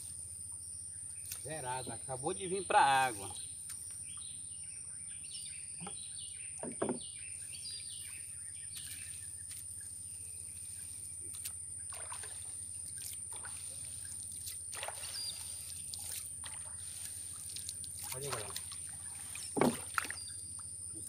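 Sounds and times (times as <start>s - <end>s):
small splashes of paddle and hands: 8.7s - 20.8s
water trickling and dripping: 10.5s - 21.0s
splash in water: 11.4s - 20.3s.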